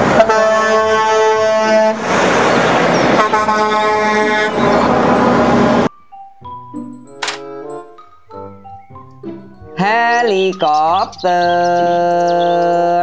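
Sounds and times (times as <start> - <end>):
truck air horn blasts: 0.0 - 2.0, 3.1 - 5.9
passing truck: 0.0 - 5.9.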